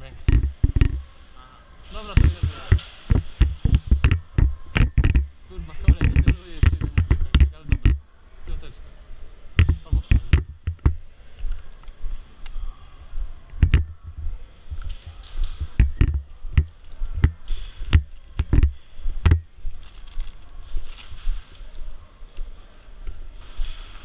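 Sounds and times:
clothing and gear rustling: 19.6s - 21.9s.

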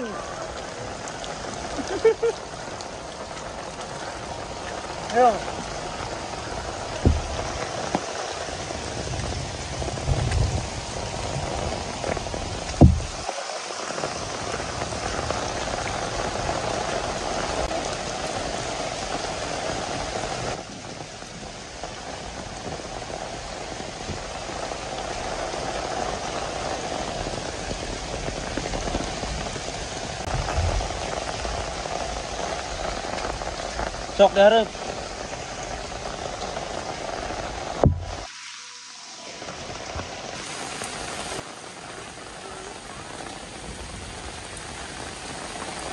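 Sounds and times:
heavy rain falling: 0.0s - 45.9s
sharp low knocks: 7.0s - 8.1s, 12.7s - 13.2s, 30.3s - 31.2s, 37.8s - 38.3s.

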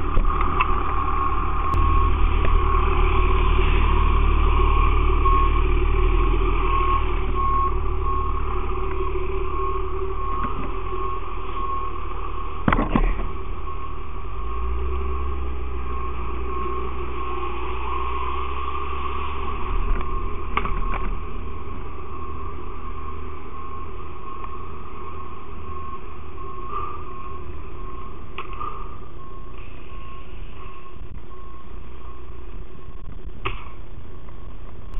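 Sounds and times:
fire engine running: 0.0s - 34.9s
electronic beeps: 0.3s - 21.3s.

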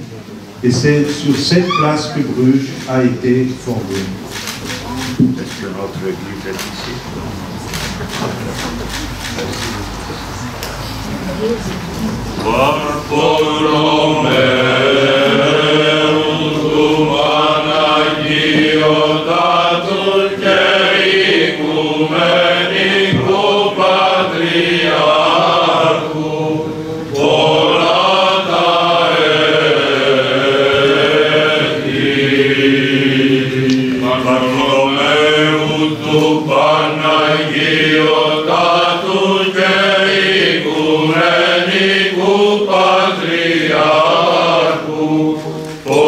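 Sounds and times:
choir chanting a cappella: 12.1s - 46.0s.

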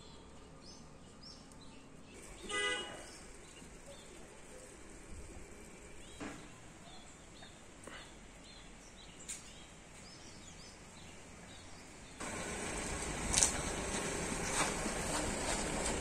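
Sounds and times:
small birds chirping: 0.0s - 14.5s
loud steady noise: 12.2s - 15.3s.

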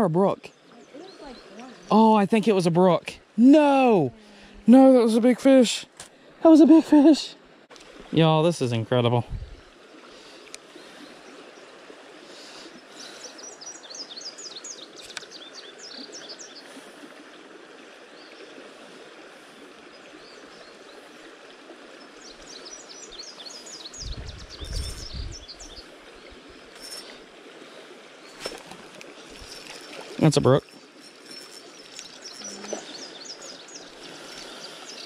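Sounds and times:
songbird chirping: 0.0s - 7.2s, 12.8s - 16.8s, 22.0s - 27.2s, 28.2s - 35.0s
creek water over rocks: 0.0s - 35.0s.

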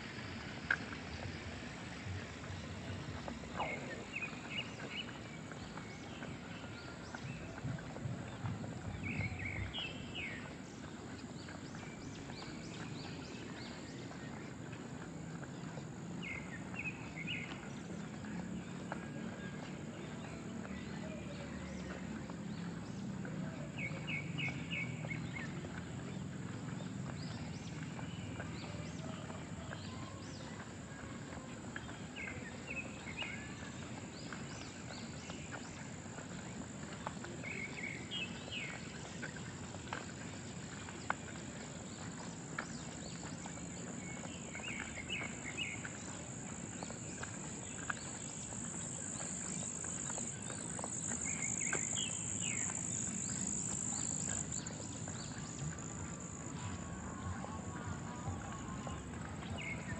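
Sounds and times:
rain hiss: 0.0s - 14.0s
water dripping: 0.0s - 59.9s.

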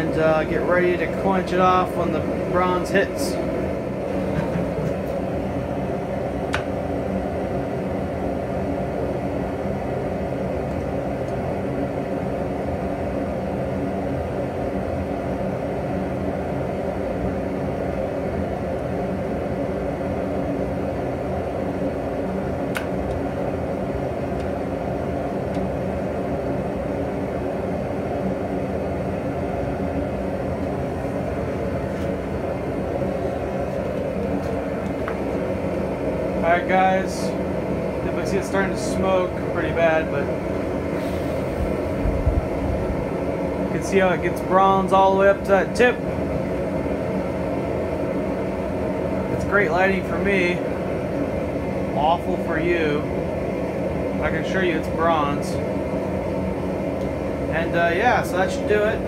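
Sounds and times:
leaf blower whirring hum: 0.0s - 59.0s.

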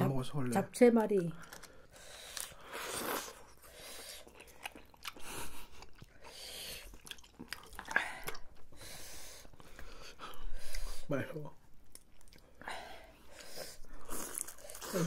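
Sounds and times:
wet chewing and biting: 1.4s - 8.8s.

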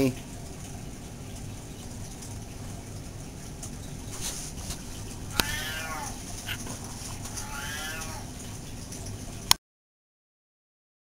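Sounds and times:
cat meowing: 5.3s - 6.6s, 7.3s - 8.4s.

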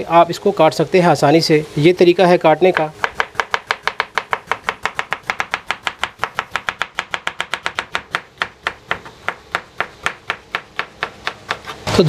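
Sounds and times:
knife chopping on wooden board: 2.7s - 11.9s.

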